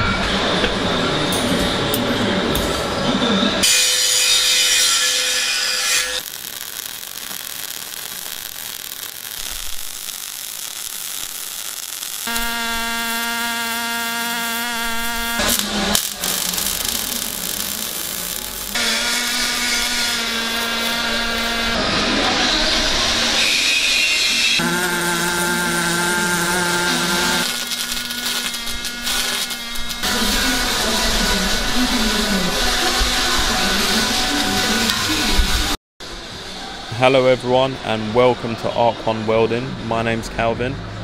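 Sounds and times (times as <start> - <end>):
power tools cutting metal: 3.6 - 35.7
motor humming: 6.8 - 21.8, 24.6 - 30.0.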